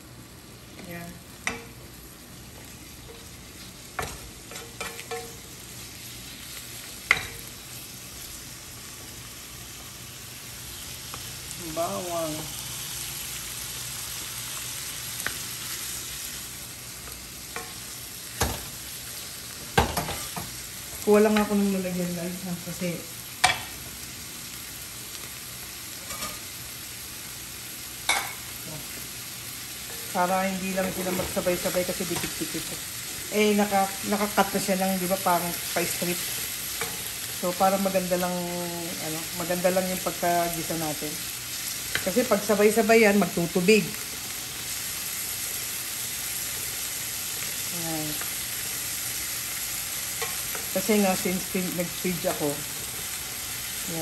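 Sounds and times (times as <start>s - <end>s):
meat sizzling in hot oil: 0.0s - 54.0s.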